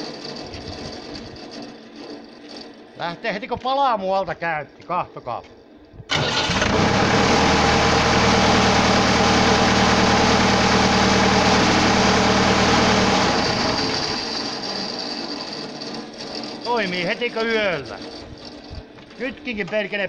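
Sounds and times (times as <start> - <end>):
tractor diesel engine running: 6.1 - 17.2.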